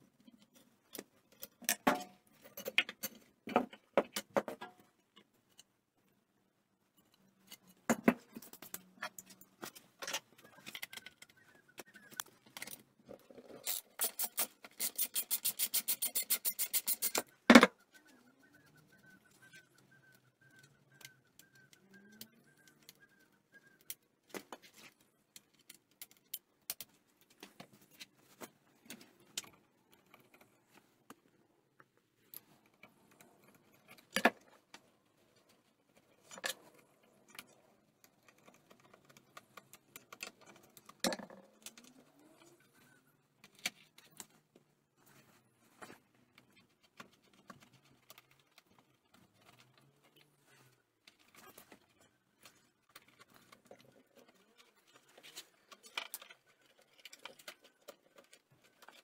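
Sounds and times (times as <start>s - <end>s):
ratchet wrench clicking: 13.7s - 17.2s.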